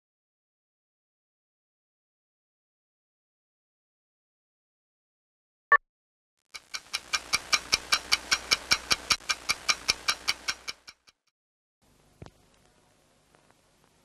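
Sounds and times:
rapid ringing ticks: 6.6s - 11.2s.

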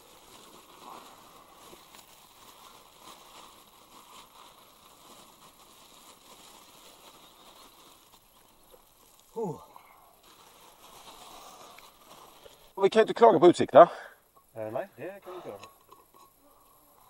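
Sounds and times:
plastic bag crinkling: 0.0s - 9.4s, 10.0s - 12.7s.

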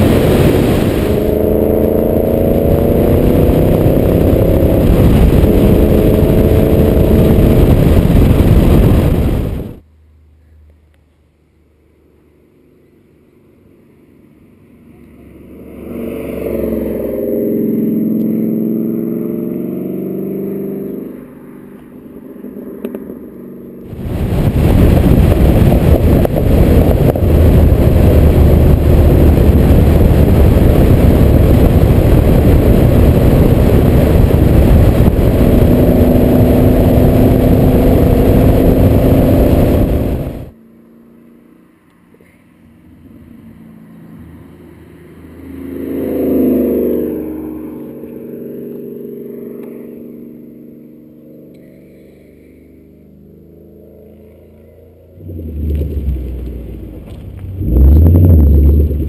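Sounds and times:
wind rush: 0.0s - 9.8s, 23.9s - 40.6s, 55.3s - 59.0s
low engine drone: 0.0s - 59.0s
car engine revving past: 14.4s - 41.7s, 42.7s - 59.0s.

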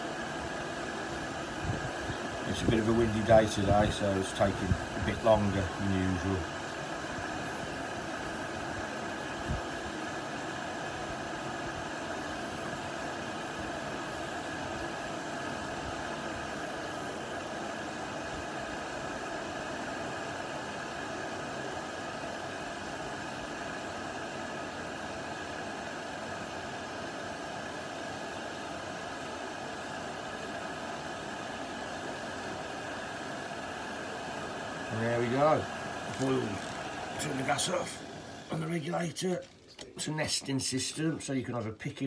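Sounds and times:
gas stove burner hissing: 0.0s - 41.4s.

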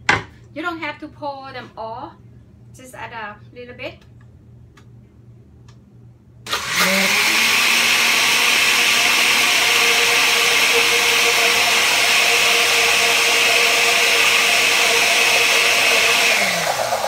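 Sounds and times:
blender running: 6.5s - 17.0s.

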